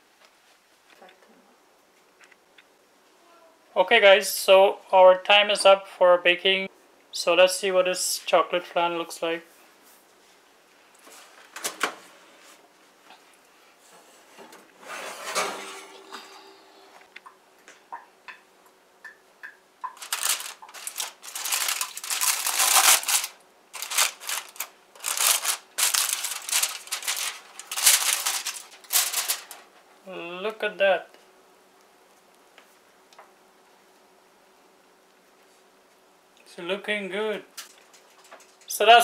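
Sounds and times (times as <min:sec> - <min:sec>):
aluminium foil crinkling: 0:19.8 - 0:30.0, 0:37.5 - 0:38.8.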